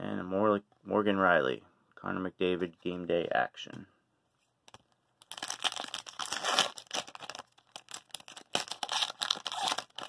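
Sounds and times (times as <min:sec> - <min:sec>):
card pack wrapper crinkling and tearing: 0:04.7 - 0:10.0.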